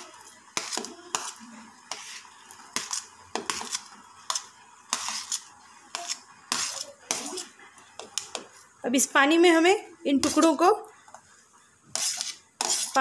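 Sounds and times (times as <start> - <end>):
spoon scraping and clinking: 12.0 - 13.0.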